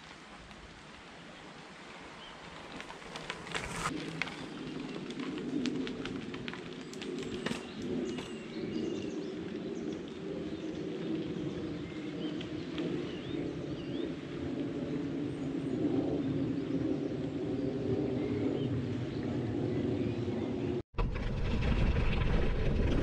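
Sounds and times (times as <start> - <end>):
bicycle rolling along a path: 0.0 - 20.8
small birds chirping: 6.8 - 14.2.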